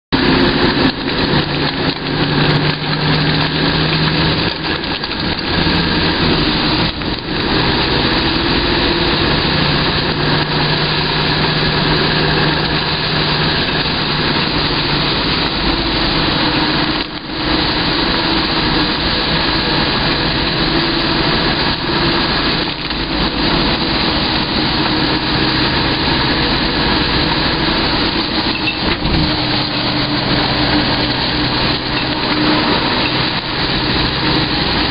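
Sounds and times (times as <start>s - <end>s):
vehicle engine running: 0.1s - 34.9s
rain and wet road hiss: 0.2s - 34.9s.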